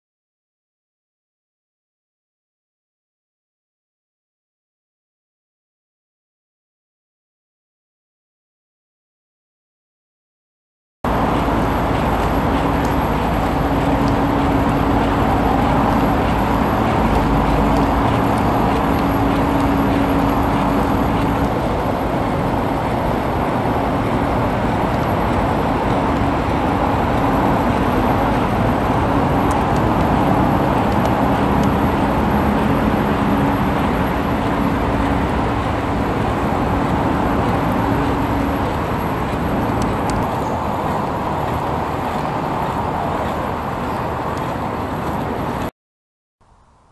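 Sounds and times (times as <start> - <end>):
outdoor background rumble: 11.0 - 45.7.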